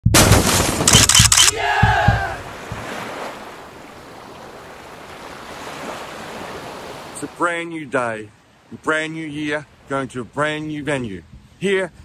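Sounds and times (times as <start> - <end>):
loud crackling burst: 0.1 - 1.6
surf washing: 1.6 - 11.8.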